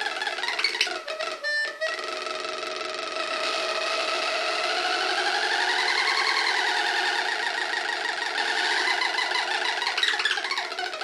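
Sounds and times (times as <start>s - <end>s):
buzzy warbling synth drone: 0.0s - 11.0s.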